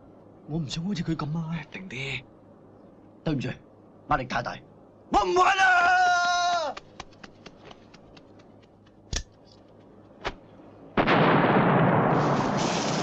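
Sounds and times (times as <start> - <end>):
firecracker blast: 11.0 - 13.0.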